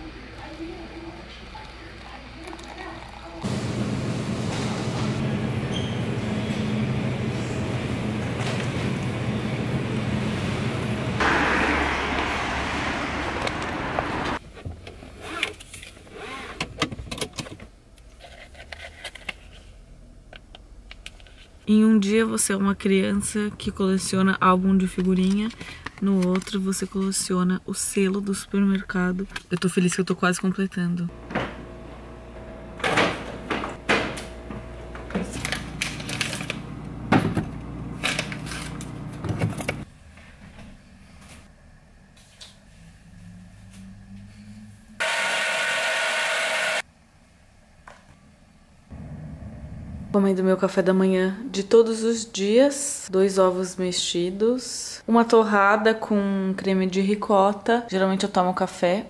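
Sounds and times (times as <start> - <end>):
loud rushing noise: 11.0 - 14.4
low steady hum: 47.0 - 51.5.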